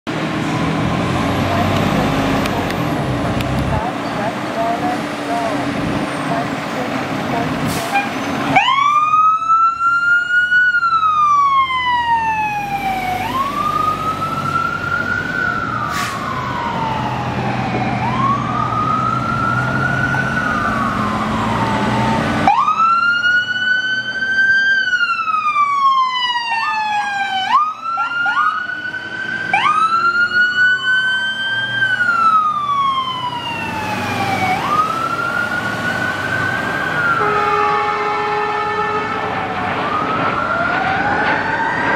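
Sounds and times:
fire truck engines rumbling: 0.1 - 41.9
sirens wailing: 0.1 - 41.9
quick short siren sweeps: 15.7 - 16.8.

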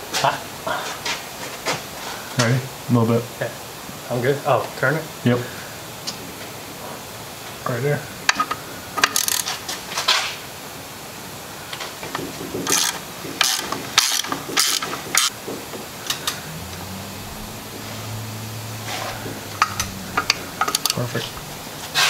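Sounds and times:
low steady hum: 15.3 - 22.0.

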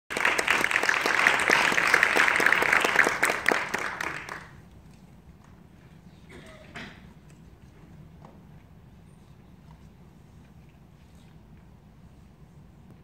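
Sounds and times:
audience applauding: 0.1 - 4.6.

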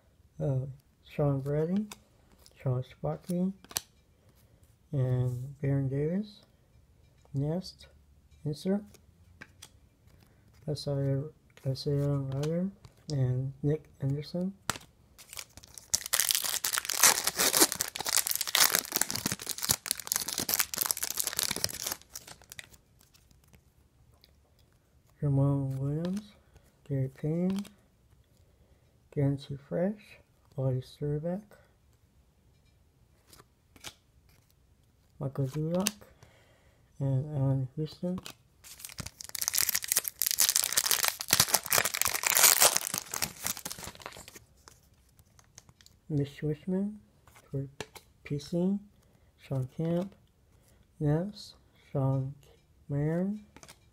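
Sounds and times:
foil wrapper crinkling and tearing: 14.7 - 23.4, 38.6 - 44.8.

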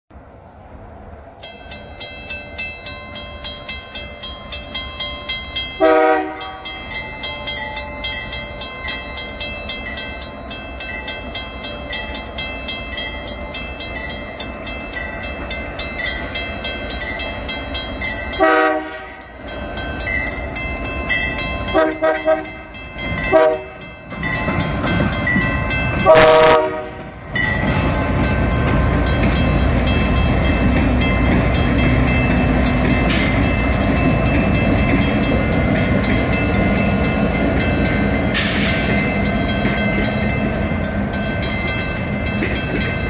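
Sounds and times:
diesel freight train rumble: 0.1 - 43.0
level crossing bell ringing: 1.4 - 38.4
train horn blast: 5.8 - 6.6, 18.4 - 19.3, 21.7 - 22.6, 23.3 - 23.8, 26.0 - 27.0.

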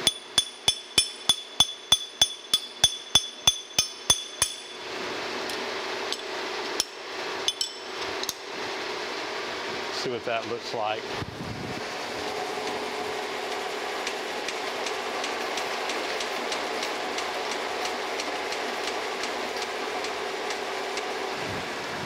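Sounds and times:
milling machine motor drone: 4.4 - 22.0.

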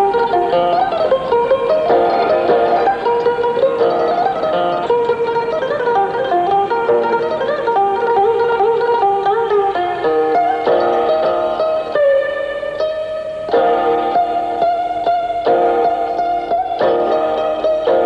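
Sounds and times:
plucked string instrumental tune: 0.0 - 18.0.

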